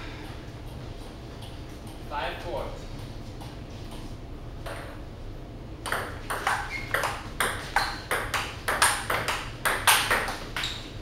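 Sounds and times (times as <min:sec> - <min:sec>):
ping-pong ball hitting paddles: 0:03.0 - 0:05.0, 0:05.8 - 0:10.8.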